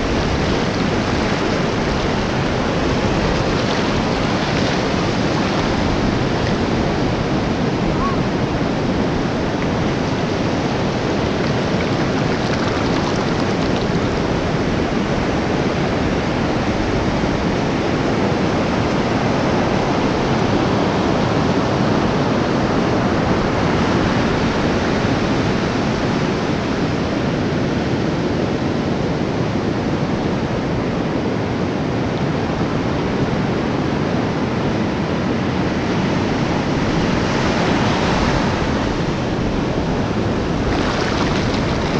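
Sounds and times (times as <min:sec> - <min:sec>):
ocean surf breaking: 0:00.0 - 0:19.8, 0:35.4 - 0:41.9
wind on microphone: 0:00.0 - 0:41.9.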